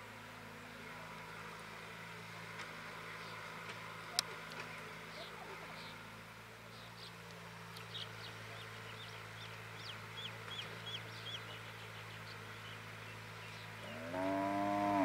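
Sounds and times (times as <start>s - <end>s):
diesel engine humming: 0.0s - 15.0s
bird chirping: 6.6s - 14.4s
cow mooing: 13.8s - 15.0s.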